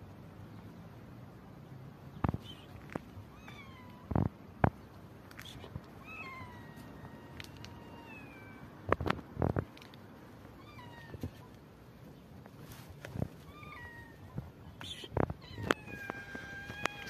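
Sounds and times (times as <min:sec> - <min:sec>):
kittens meowing: 0:02.3 - 0:04.3, 0:05.3 - 0:08.7, 0:10.5 - 0:11.6, 0:13.2 - 0:17.0.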